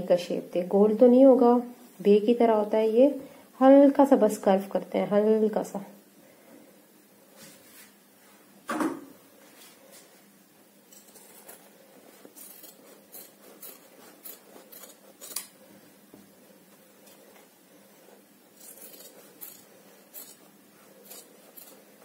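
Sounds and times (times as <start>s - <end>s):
shears snipping paper: 12.2s - 15.5s, 18.6s - 22.0s.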